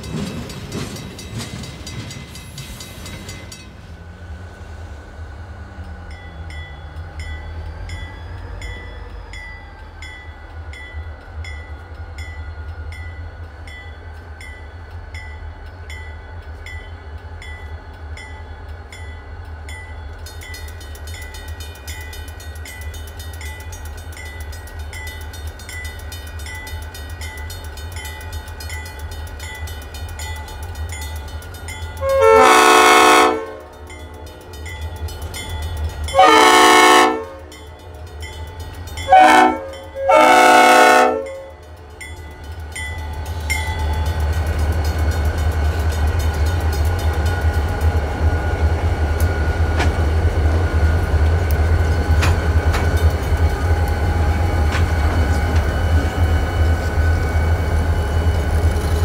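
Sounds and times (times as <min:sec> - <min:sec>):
crossing bell dinging: 0:05.8 - 0:49.6
locomotive air horn: 0:32.0 - 0:33.8, 0:36.1 - 0:37.6, 0:39.1 - 0:41.6.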